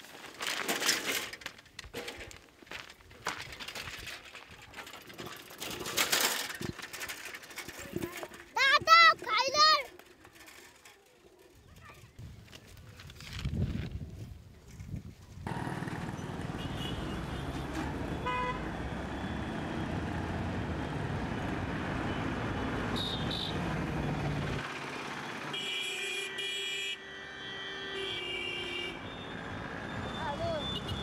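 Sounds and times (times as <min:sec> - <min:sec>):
road traffic rumble: 0:15.4 - 0:31.0
vehicle horns: 0:16.3 - 0:19.6, 0:22.1 - 0:23.8, 0:25.4 - 0:31.0.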